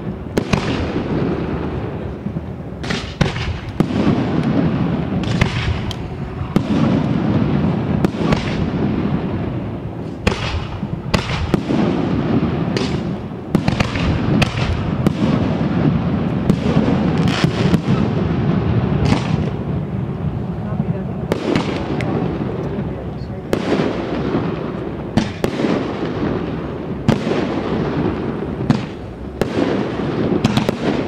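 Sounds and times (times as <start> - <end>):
firework bangs: 0.0 - 31.0
firework rumble and crackle: 0.0 - 31.0.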